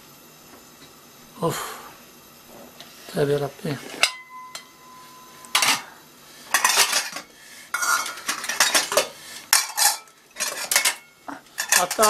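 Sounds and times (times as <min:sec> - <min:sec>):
metal bowls and plates clattering: 0:03.9 - 0:05.9, 0:06.5 - 0:12.0
clink with ringing tone: 0:04.1 - 0:05.8.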